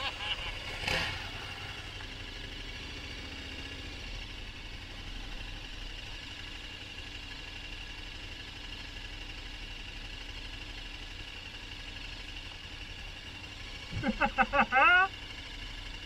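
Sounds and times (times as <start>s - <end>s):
motorcycle engine idling: 0.0s - 16.0s
motorcycle passing close by: 0.4s - 2.0s.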